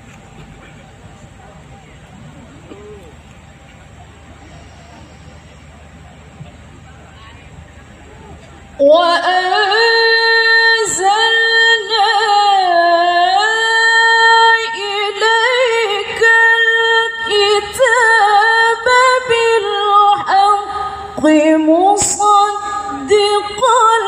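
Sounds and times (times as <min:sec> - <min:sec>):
low murmur: 0:00.0 - 0:24.0
woman reciting melodically over loudspeaker: 0:08.8 - 0:24.0.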